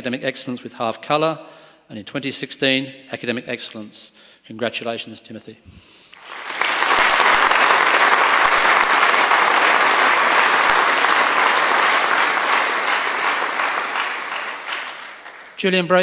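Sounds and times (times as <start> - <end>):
audience applauding: 6.2 - 15.6.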